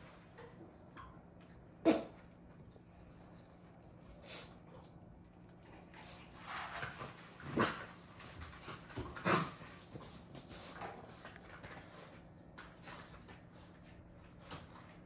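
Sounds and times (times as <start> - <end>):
puppies scuffling: 5.4 - 15.0.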